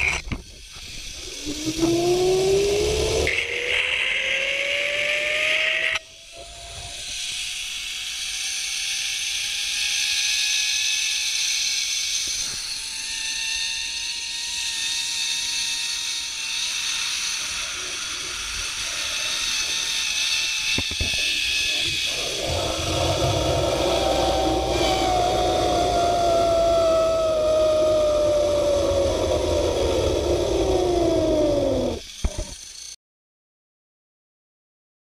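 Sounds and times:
zip-line pulleys whining: 0.0 - 33.0.

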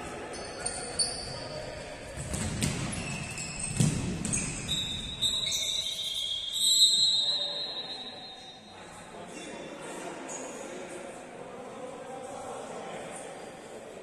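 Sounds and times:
sneakers squeaking on court: 2.2 - 7.5.

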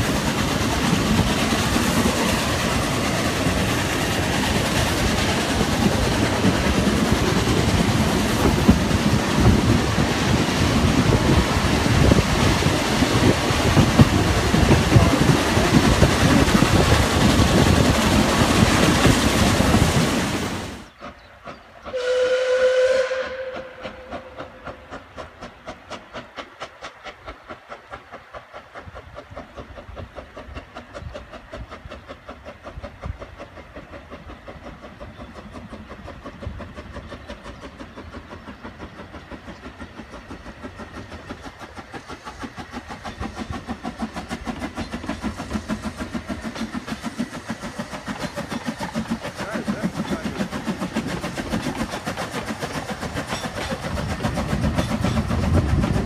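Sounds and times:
steam exhaust chuffing: 0.0 - 56.0
steam locomotive whistle: 21.9 - 24.6.

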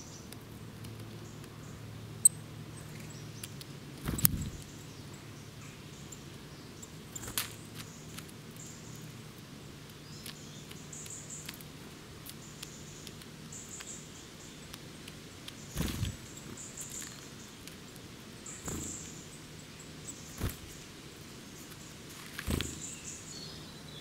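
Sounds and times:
small ticks: 0.3 - 4.7, 6.1 - 19.1
bird wings fluttering: 4.0 - 4.7, 7.2 - 7.9, 15.7 - 17.2, 18.6 - 19.1, 20.3 - 20.8, 21.7 - 23.0.

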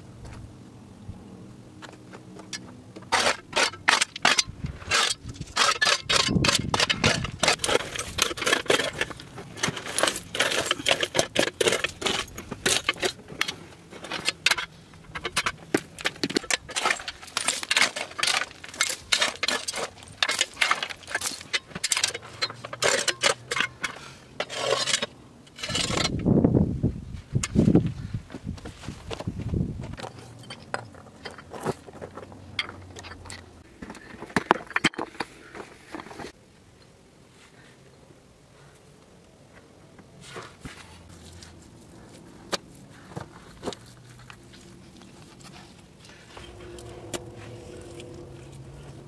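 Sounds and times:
stones clinking and scraping: 2.5 - 26.2, 41.2 - 49.0.

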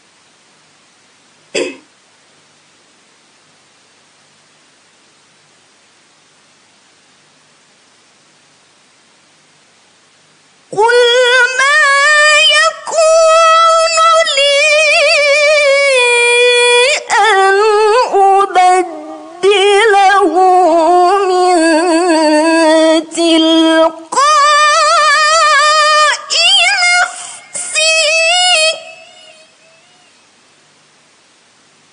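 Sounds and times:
faint hiss: 0.0 - 31.9
woman reciting melodically: 10.7 - 30.2.

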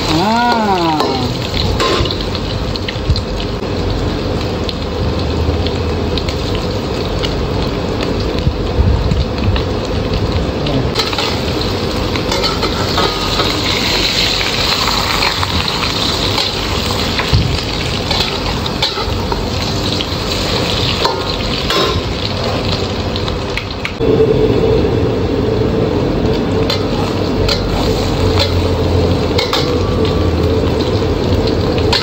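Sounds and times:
omelette sizzling in hot oil: 0.0 - 24.4, 25.0 - 32.0
steady hum: 24.0 - 30.7.

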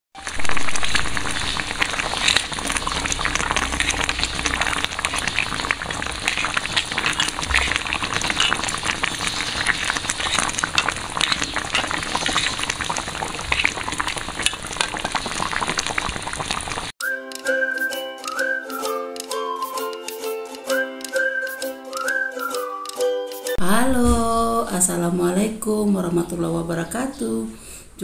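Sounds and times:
curry sizzling and bubbling in wok: 0.2 - 16.9.

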